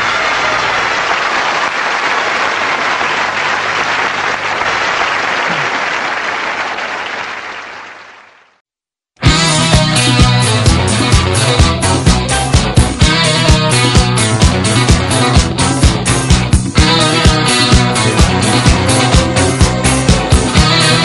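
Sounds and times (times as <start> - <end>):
audience applause: 0.0 - 8.6
guitar rock music: 9.2 - 21.0.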